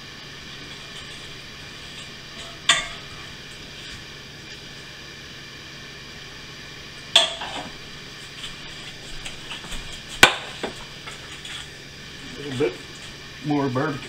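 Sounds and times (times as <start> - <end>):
dishes clinking: 2.4 - 3.1.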